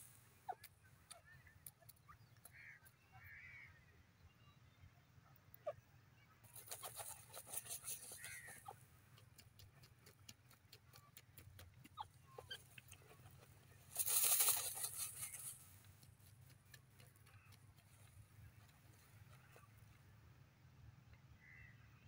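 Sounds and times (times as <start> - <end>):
thrown dirt and shuffling feathers: 6.4 - 20.0
bird scratching dirt: 6.5 - 19.6.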